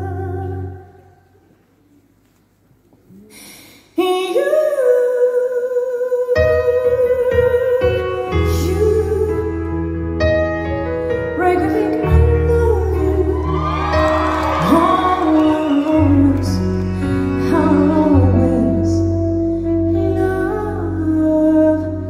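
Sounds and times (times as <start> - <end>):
woman singing: 0.0 - 1.2, 4.0 - 10.0, 11.1 - 22.0
live band playing a slow ballad: 6.4 - 22.0
saxophone: 7.4 - 22.0.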